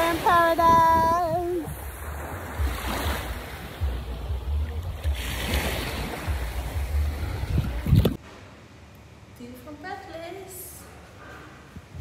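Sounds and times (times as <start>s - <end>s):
sea water lapping in surf: 0.0s - 8.2s
wind buffeting microphone: 0.0s - 8.2s, 11.8s - 12.0s.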